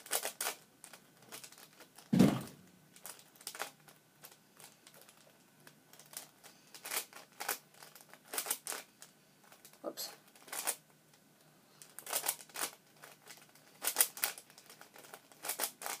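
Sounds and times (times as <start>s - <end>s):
dull thump: 2.1s - 2.6s.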